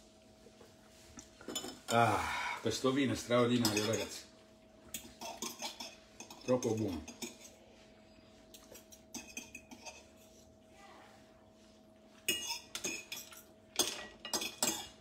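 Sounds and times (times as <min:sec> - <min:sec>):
fork clinking on ceramic plate: 0:03.6 - 0:04.1, 0:08.6 - 0:10.1, 0:12.3 - 0:15.0.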